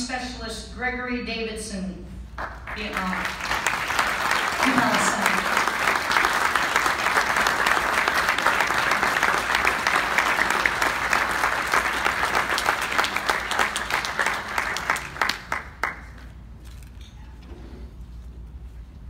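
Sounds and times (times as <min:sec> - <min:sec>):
audience applauding: 0:02.4 - 0:16.3.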